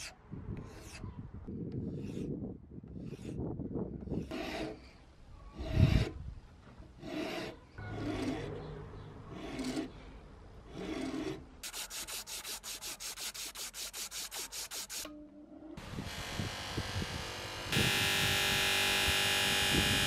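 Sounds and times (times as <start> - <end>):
file rasping on wood: 1.8 - 3.4, 4.0 - 5.0, 5.6 - 6.2, 7.0 - 8.3.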